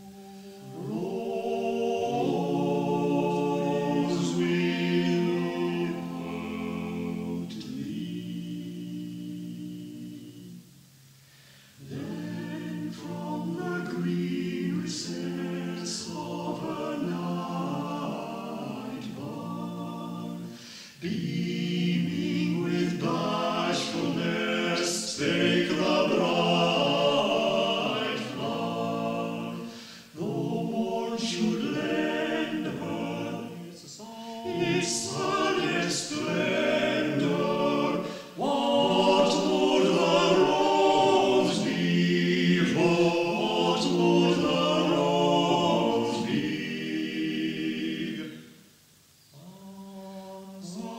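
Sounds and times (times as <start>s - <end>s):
choir singing unaccompanied: 0.0s - 50.9s.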